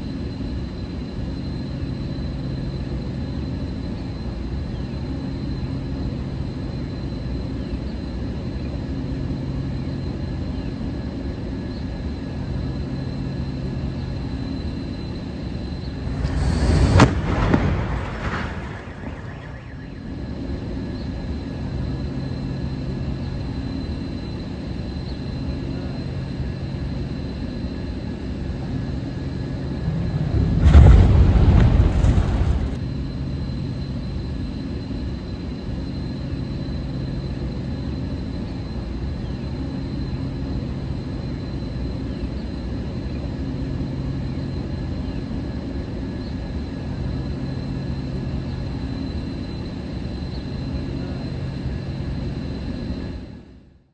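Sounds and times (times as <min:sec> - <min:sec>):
low hum with high whine: 0:00.0 - 0:53.9
steel stack crashing to ground: 0:30.5 - 0:32.8.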